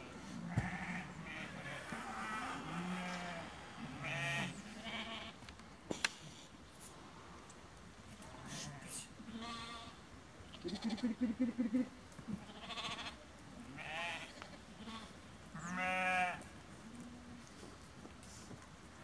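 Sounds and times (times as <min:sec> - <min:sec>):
sheep and goats bleating: 0:00.5 - 0:05.4, 0:08.4 - 0:11.2, 0:12.3 - 0:16.5.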